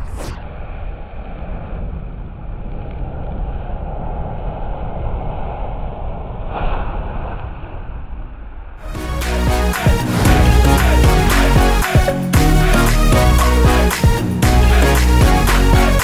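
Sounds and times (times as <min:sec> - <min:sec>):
rushing flame of thrusters: 0:00.0 - 0:08.8.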